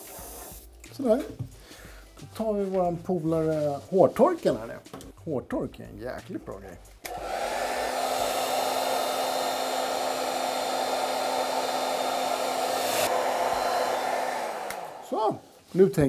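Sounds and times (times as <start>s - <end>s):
hair dryer blowing: 7.0s - 15.6s
hair dryer motor winding down: 7.1s - 15.4s.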